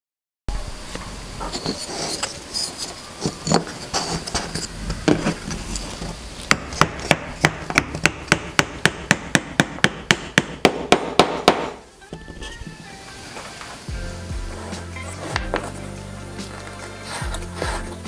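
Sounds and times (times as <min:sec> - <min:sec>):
mallet tapping wooden joint: 0:06.5 - 0:11.8.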